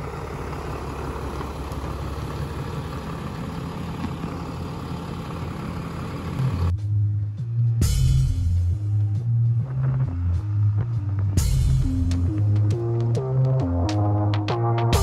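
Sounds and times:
truck engine rumbling: 0.0s - 15.0s
music with bass line: 6.4s - 15.0s.

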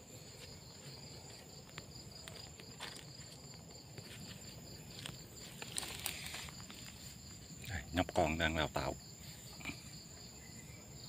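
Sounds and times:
insects chirring: 0.0s - 11.0s
faint rustling in brush: 0.1s - 7.6s.

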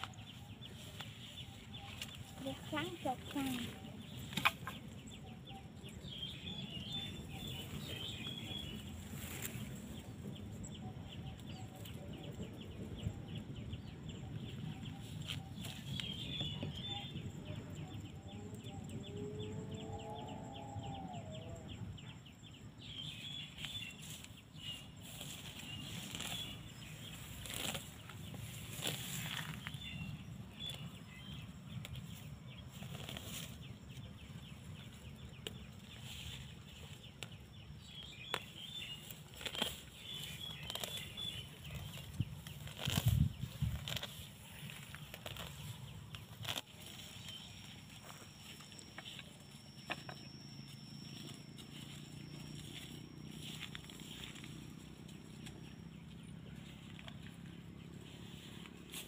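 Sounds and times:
sticks and grass crackling: 0.0s - 10.6s, 14.3s - 19.0s, 22.8s - 59.0s
wind on microphone: 41.6s - 44.1s
faint high chirps: 46.8s - 58.5s.

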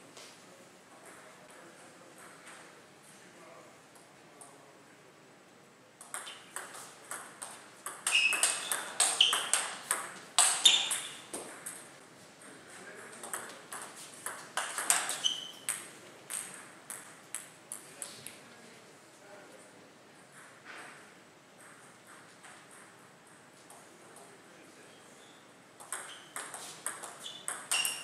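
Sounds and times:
short high squeaks: 8.0s - 9.8s, 10.4s - 11.3s, 14.9s - 15.8s, 26.0s - 28.0s.

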